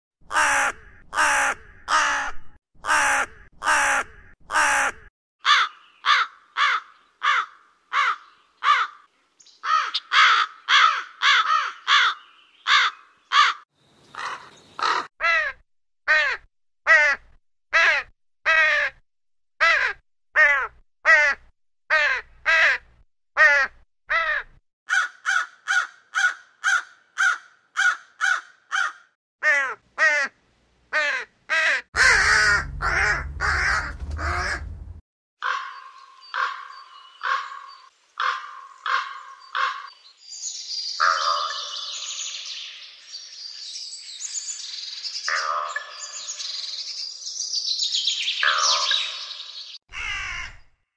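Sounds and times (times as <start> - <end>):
crows cawing: 0.3 - 17.2, 17.8 - 19.0, 19.6 - 22.8, 23.4 - 30.4, 31.0 - 34.8, 35.4 - 35.8, 36.4 - 40.0, 41.0 - 41.8, 48.4 - 49.2, 49.9 - 50.7
low rumbling noise: 32.0 - 35.0.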